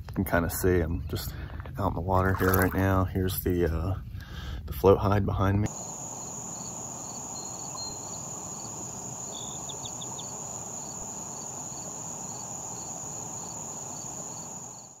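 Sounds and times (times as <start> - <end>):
insects trilling: 5.7 - 15.0
soft insect chirp: 5.7 - 15.0.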